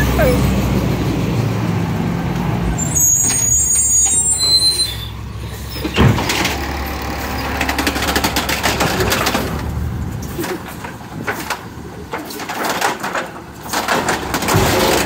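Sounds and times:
high brake squeal: 2.8s - 6.0s
truck engine running: 5.1s - 15.0s.

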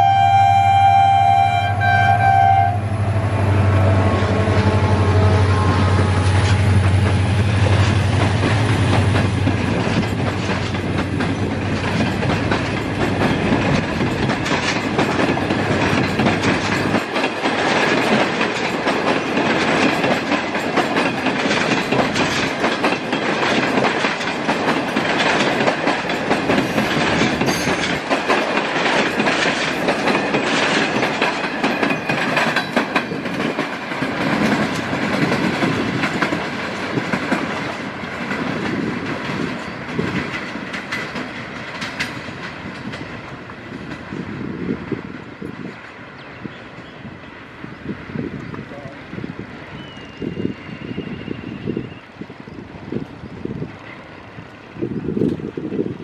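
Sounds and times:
low hum: 1.6s - 9.5s
train wheels clattering over rails: 4.4s - 49.0s.

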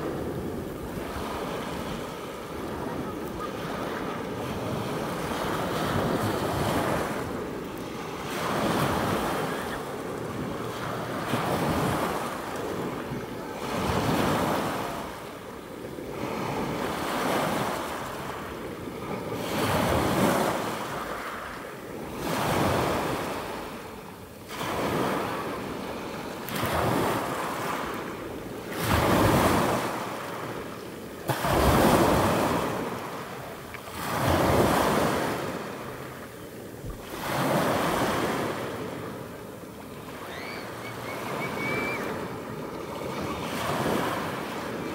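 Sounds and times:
sea waves washing onto shore: 0.0s - 44.9s.

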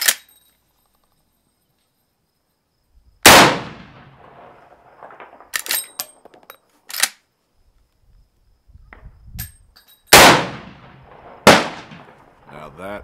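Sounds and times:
rifle shot with echo: 3.2s - 5.8s, 10.1s - 12.7s.

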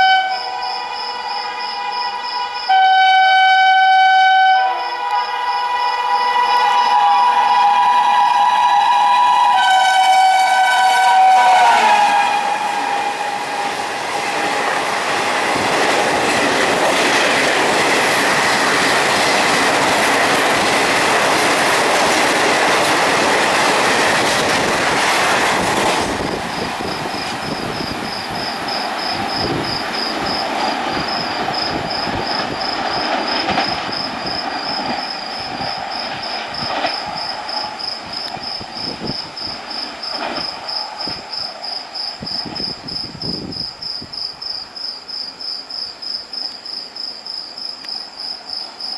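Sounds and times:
locomotive two-note horn: 0.0s - 13.7s
train coaches rushing past: 0.0s - 45.4s
insects chirping: 0.0s - 48.9s.

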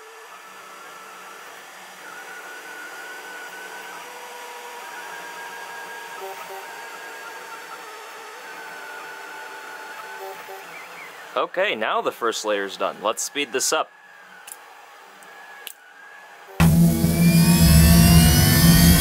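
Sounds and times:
printer whirring hiss: 0.0s - 11.4s
stepper motors whining: 0.0s - 19.0s.

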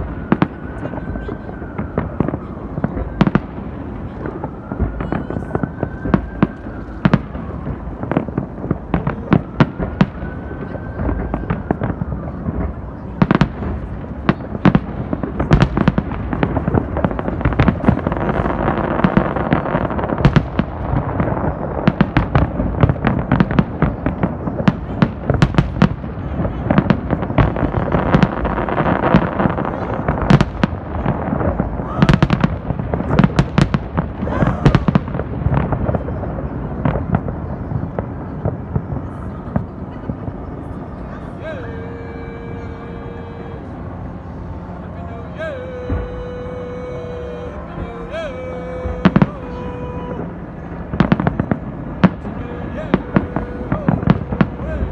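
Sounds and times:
fireworks bangs and crackles: 0.0s - 54.9s.

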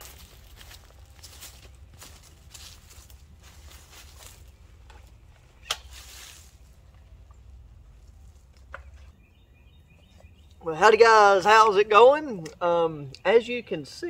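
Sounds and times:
footsteps in dry leaves: 0.0s - 8.5s
low steady rumble: 0.0s - 9.1s.

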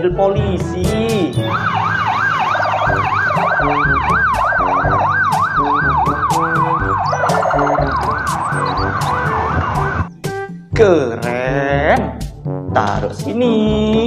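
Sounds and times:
music with a steady beat: 0.0s - 1.8s, 2.9s - 14.0s
electronic police siren: 1.4s - 10.2s.

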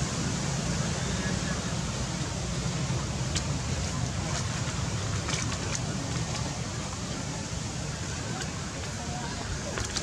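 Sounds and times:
outdoor background noise: 0.0s - 10.0s
faint indistinct voices: 3.4s - 10.0s.

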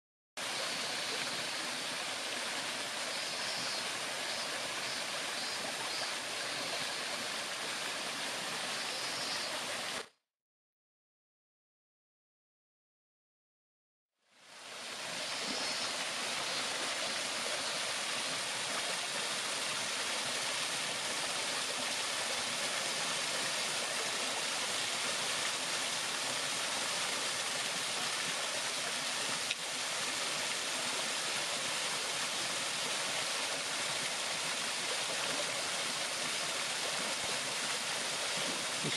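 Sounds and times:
waterfall splashing into stream: 14.7s - 38.9s.

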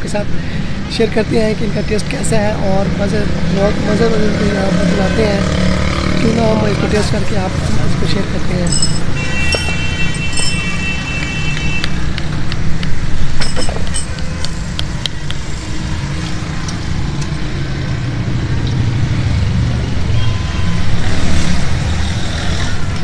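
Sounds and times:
road traffic rumble: 0.0s - 23.0s
high ringing tone: 8.7s - 11.1s.

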